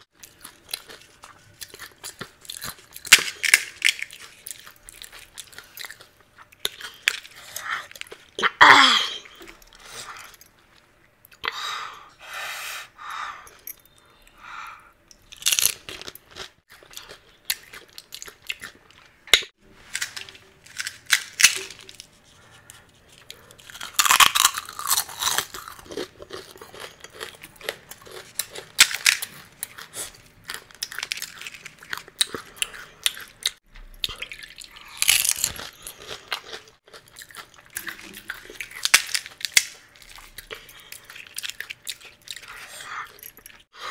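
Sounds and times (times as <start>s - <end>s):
chewing: 15.1s - 19.4s, 22.2s - 43.7s
crisp shells crunching: 15.3s - 18.8s, 19.8s - 22.6s, 23.4s - 32.5s.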